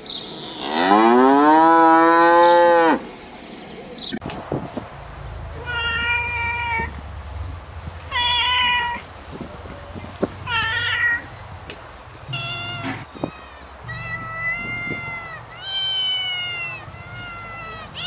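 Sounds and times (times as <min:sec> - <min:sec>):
cat meowing: 0:05.6 - 0:06.9, 0:08.1 - 0:09.0, 0:10.5 - 0:11.3, 0:12.3 - 0:18.0.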